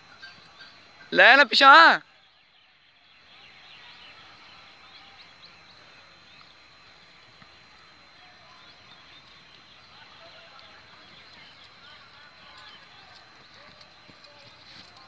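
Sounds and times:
small birds chirping: 3.0 - 15.0.

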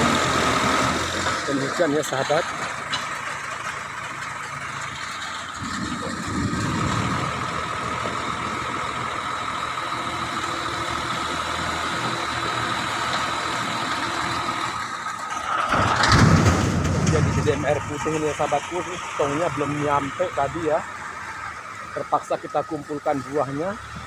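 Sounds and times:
backhoe diesel engine running: 0.0 - 24.0.

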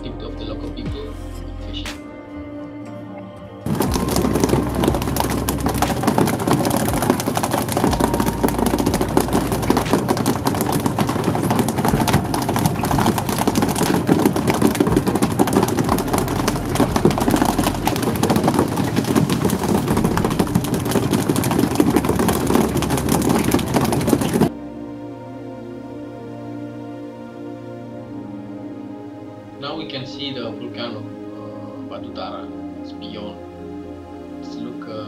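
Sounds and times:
boat engine running: 3.7 - 24.5
water rushing along hull: 3.7 - 24.5.

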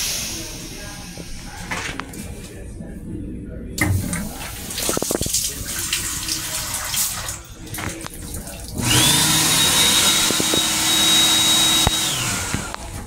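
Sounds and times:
sink faucet running: 3.9 - 13.0
electric motor whining: 8.8 - 12.9.

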